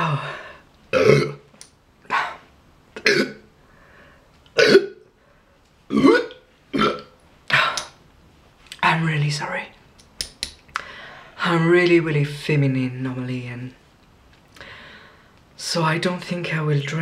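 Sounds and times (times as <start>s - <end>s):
woman burping loudly: 0.9s - 1.5s, 3.0s - 3.5s, 4.6s - 5.1s, 5.9s - 7.2s.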